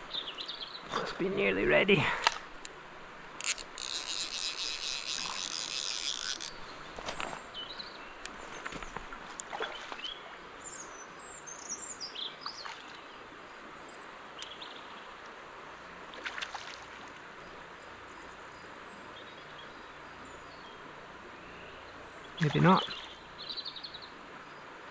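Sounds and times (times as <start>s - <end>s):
birds chirping: 0.0s - 2.4s, 3.8s - 15.2s, 17.4s - 24.8s
river water rushing: 0.0s - 11.4s, 20.7s - 23.5s.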